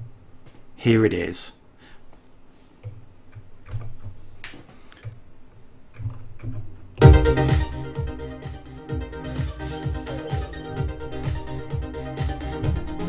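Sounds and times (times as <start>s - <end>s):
drums and synth pattern: 7.0s - 13.0s
soft low synth notes: 7.0s - 13.0s.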